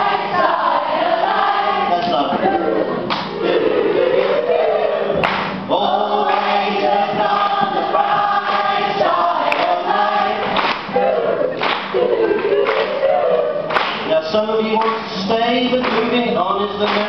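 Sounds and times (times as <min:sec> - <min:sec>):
group singing a pop song: 0:00.0 - 0:17.0
acoustic guitar: 0:05.2 - 0:17.0
man singing: 0:05.7 - 0:06.4, 0:14.0 - 0:17.0.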